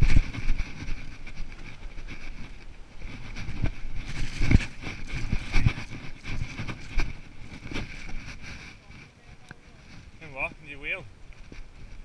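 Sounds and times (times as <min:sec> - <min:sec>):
heavy thumps over bumps: 0:00.0 - 0:09.1
bike frame rattling: 0:00.0 - 0:09.2
tyres rumbling on dirt: 0:00.0 - 0:12.0.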